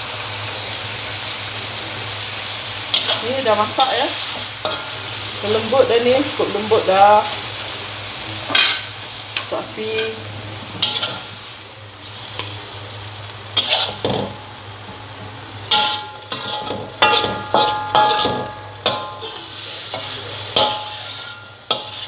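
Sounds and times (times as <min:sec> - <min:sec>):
wok ringing: 0:02.8 - 0:07.6, 0:08.5 - 0:11.6, 0:13.5 - 0:15.0, 0:15.6 - 0:22.0
metal spoon scraping a wok: 0:02.9 - 0:06.8, 0:08.5 - 0:10.2, 0:10.8 - 0:12.6, 0:13.6 - 0:14.4, 0:15.7 - 0:22.0.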